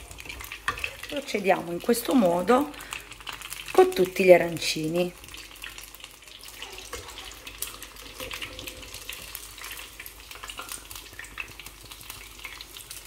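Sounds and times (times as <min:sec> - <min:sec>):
food deep-frying in oil: 0:00.0 - 0:13.0.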